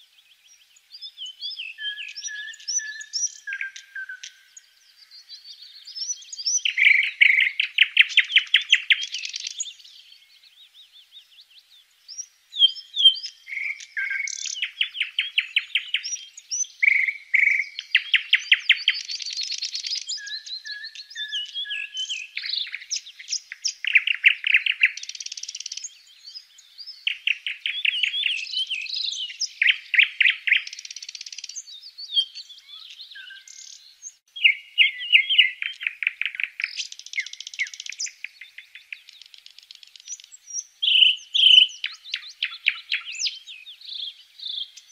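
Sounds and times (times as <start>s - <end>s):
nestlings chirping: 12.1s - 44.9s.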